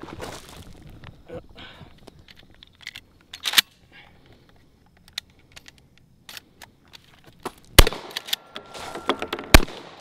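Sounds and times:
shotgun loading clicks: 2.2 - 7.1, 8.0 - 8.6
shotgun blast: 7.8 - 8.5, 9.5 - 10.0.

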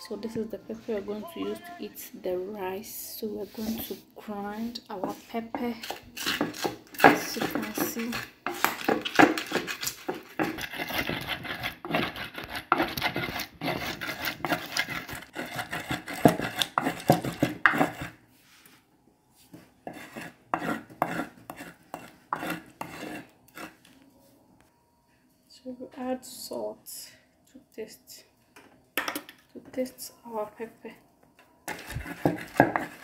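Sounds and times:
rubbing and knocking strokes: 3.4 - 18.7
wooden pestle grinding in bowl: 4.7 - 18.2, 19.8 - 23.8, 31.7 - 33.0.

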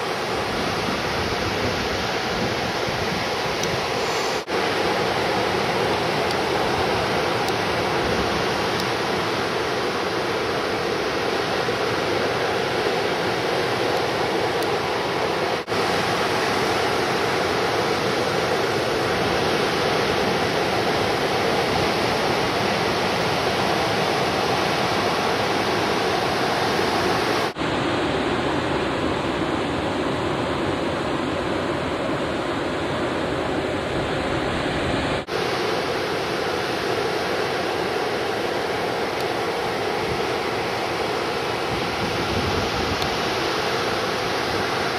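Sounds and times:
ocean surf breaking: 0.0 - 44.9.

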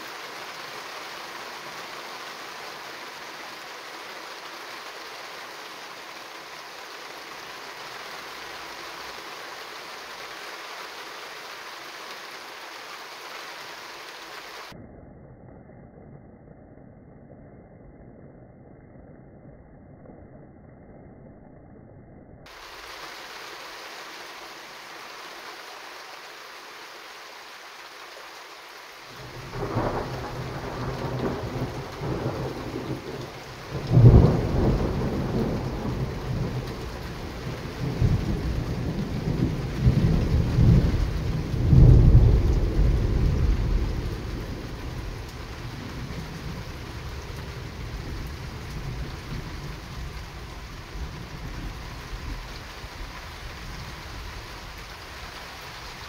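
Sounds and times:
steady rain: 0.0 - 14.8, 22.5 - 56.0
thunder rumbling: 29.1 - 55.2.

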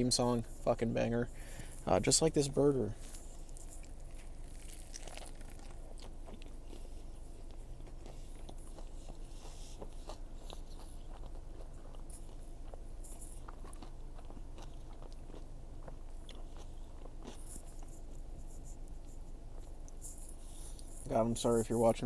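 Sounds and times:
man chewing food: 3.0 - 21.1.

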